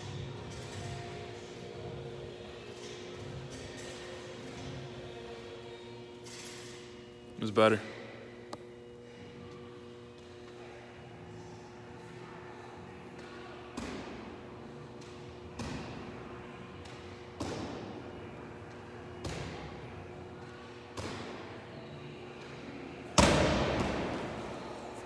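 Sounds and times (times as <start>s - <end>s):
medicine ball thudding: 17.4s - 18.0s, 23.2s - 24.3s.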